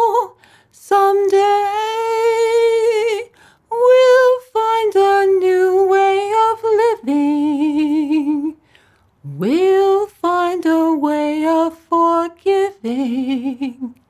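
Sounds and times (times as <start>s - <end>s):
woman singing a cappella: 0.0s - 14.0s
short breath: 0.4s - 0.8s, 3.3s - 3.7s, 8.6s - 9.2s.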